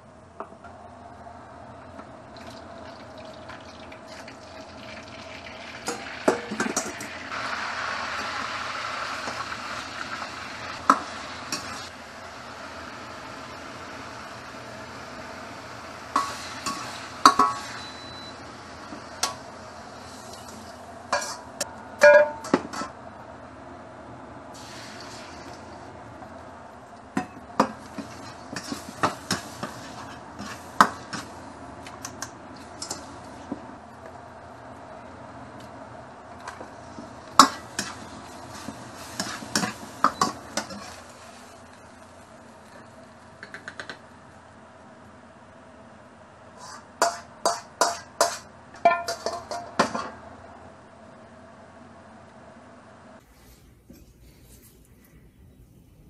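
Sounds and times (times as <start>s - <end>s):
metal spatula scraping wok: 16.1s - 18.3s, 20.0s - 21.6s, 27.6s - 31.4s, 37.4s - 41.6s, 46.6s - 50.0s.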